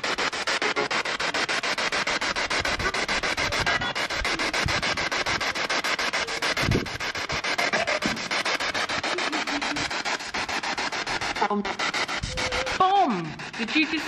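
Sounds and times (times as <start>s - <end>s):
radio static chopping rapidly: 0.0s - 14.0s
snatches of broadcast sound: 0.0s - 14.0s.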